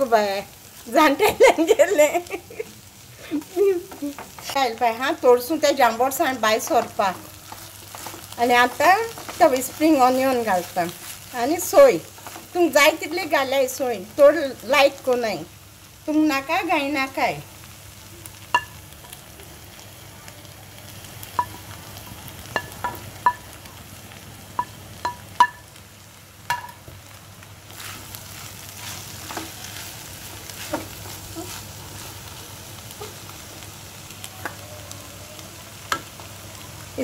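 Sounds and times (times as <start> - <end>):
low sizzle: 0.0 - 37.0
wooden spatula clacking on pan: 18.5 - 18.8, 22.5 - 23.5, 24.6 - 25.6, 26.5 - 26.8.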